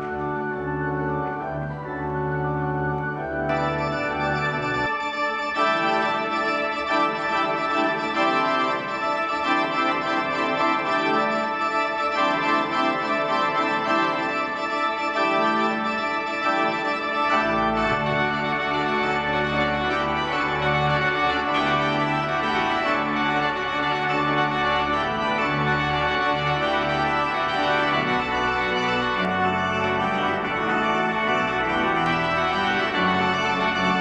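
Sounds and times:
pipe organ chords: 0.0s - 34.0s.

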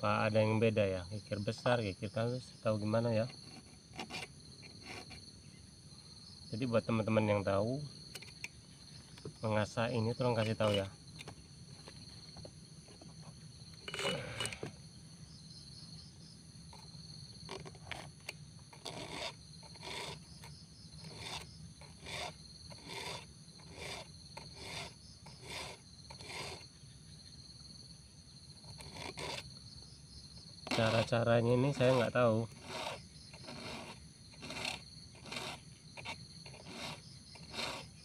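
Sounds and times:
file rasping on chainsaw teeth: 3.0s - 5.2s, 10.2s - 10.9s, 13.8s - 14.6s, 16.8s - 26.7s, 28.6s - 29.5s, 30.6s - 38.0s
loud scrape: 3.2s - 5.2s, 13.8s - 14.7s, 18.7s - 26.6s, 28.6s - 29.5s, 30.6s - 38.0s.

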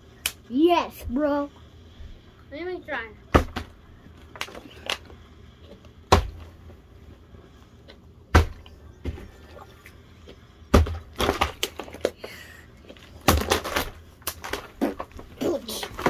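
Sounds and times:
plastic bottle landing with thuds: 3.4s - 3.8s, 6.1s - 6.5s, 8.3s - 9.4s, 10.7s - 12.1s, 13.2s - 16.0s.

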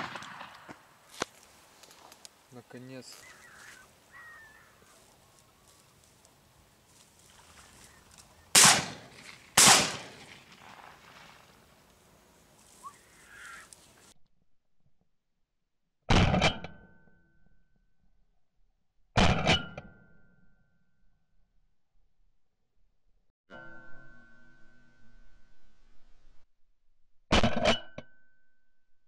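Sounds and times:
shotgun shots: 0.0s - 0.8s, 8.5s - 11.4s.

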